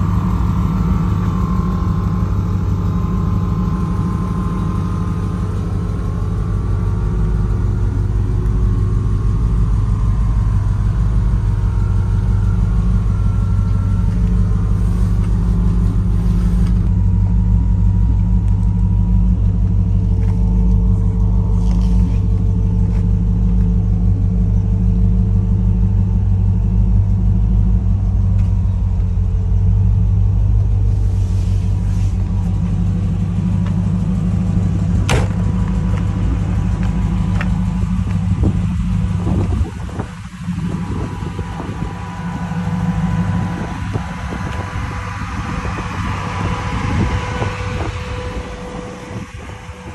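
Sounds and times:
engine idling: 0.0 - 49.9.

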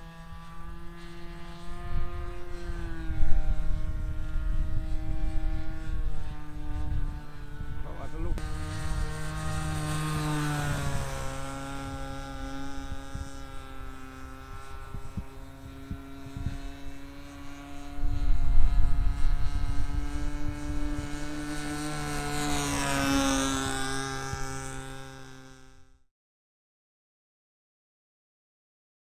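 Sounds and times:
model airplane engine: 0.0 - 26.1
wind buffeting microphone: 0.2 - 25.2.

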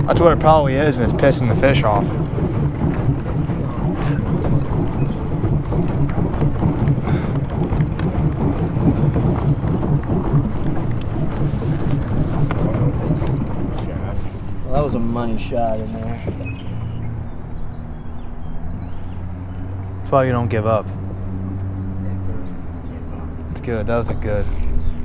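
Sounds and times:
water churning: 0.0 - 25.0
wind rumble on microphone: 0.0 - 25.0.

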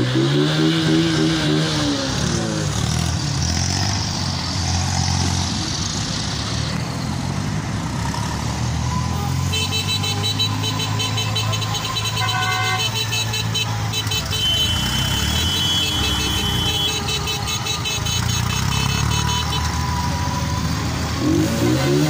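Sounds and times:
tractor engines running: 0.0 - 22.0
pulsing electronic horn tone: 8.9 - 20.1.

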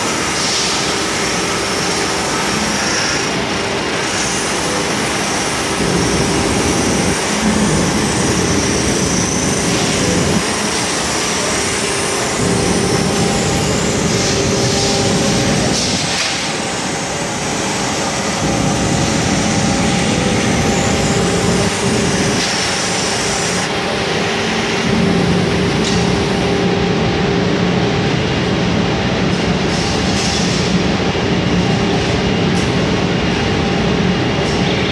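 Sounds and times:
glass grinding machine: 0.0 - 26.7.

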